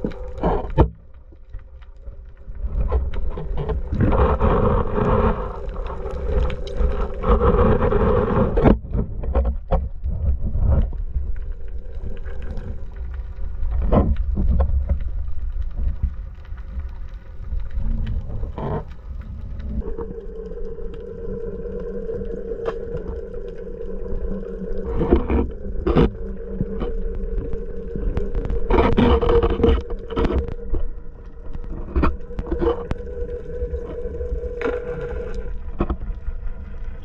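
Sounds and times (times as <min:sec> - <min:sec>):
droning hum: 0:00.0 - 0:37.0
underwater low rumble: 0:00.0 - 0:37.0.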